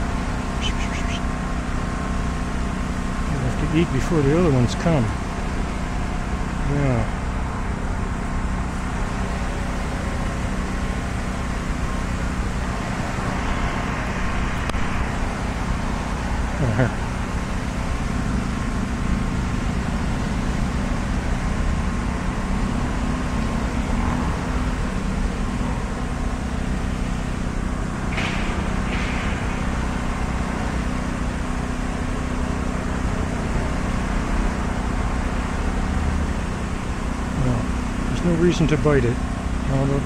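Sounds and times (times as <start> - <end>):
road traffic drone: 0.0 - 40.0
short high-pitched sounds: 0.6 - 1.3.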